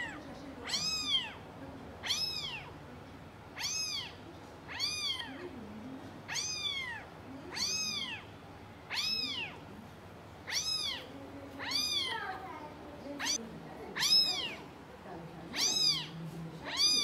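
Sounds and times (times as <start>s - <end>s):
kitten meowing: 0.0s - 1.4s, 2.0s - 2.7s, 3.6s - 5.4s, 6.3s - 8.3s, 8.9s - 9.6s, 10.5s - 12.2s, 13.2s - 13.4s, 14.0s - 14.6s, 15.6s - 17.0s.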